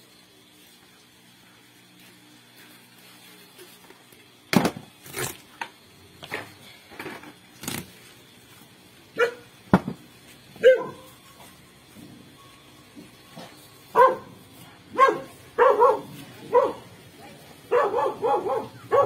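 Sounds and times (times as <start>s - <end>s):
dog barking: 9.2s - 9.5s, 10.6s - 11.1s, 14.0s - 16.9s, 17.7s - 19.0s.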